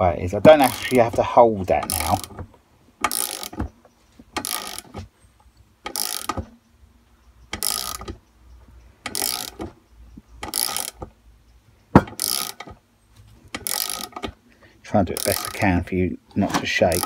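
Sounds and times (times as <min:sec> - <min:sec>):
socket ratchet clicking: 0:00.5 - 0:01.1, 0:01.8 - 0:02.4, 0:03.0 - 0:03.7, 0:04.4 - 0:05.0, 0:05.8 - 0:06.5, 0:07.5 - 0:08.2, 0:09.0 - 0:09.7, 0:10.4 - 0:11.1, 0:12.1 - 0:12.7, 0:13.5 - 0:14.4, 0:15.1 - 0:15.7.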